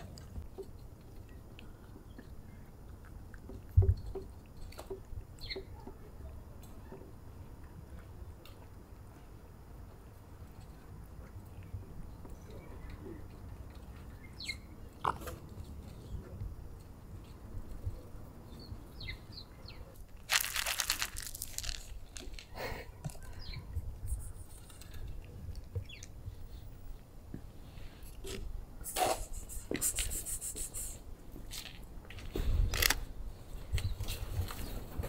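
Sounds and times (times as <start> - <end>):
cats crunching dry kibble: 20.0 - 23.4, 24.2 - 26.1, 31.4 - 33.1
kibble rattling onto pavement: 20.0 - 23.5, 31.4 - 33.1.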